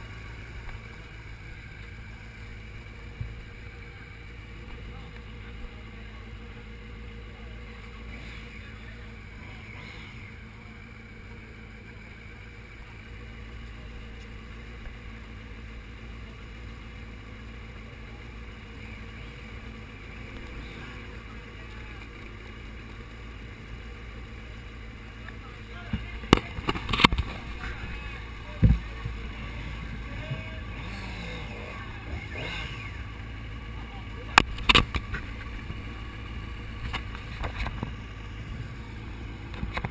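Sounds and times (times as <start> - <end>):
motorcycle engine idling: 0.0 - 39.9.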